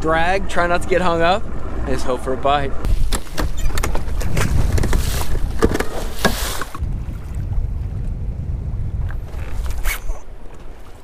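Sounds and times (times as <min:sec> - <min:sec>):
wind rumbling on microphone: 0:00.0 - 0:11.0
water lapping against a boat: 0:02.9 - 0:07.7.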